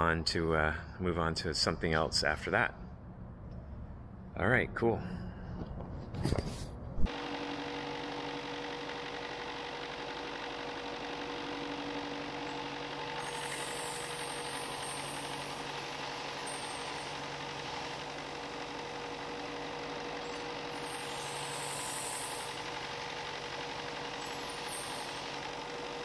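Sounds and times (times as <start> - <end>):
sander motor humming: 7.1 - 26.0
wood sanding hiss: 9.6 - 26.0.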